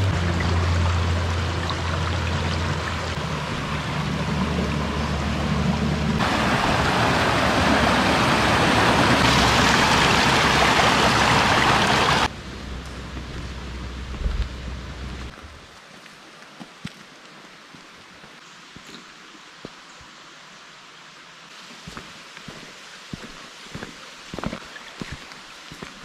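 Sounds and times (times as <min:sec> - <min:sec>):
stream running over stones: 0:00.0 - 0:12.3, 0:13.1 - 0:26.0
water rushing between logs: 0:00.0 - 0:12.3.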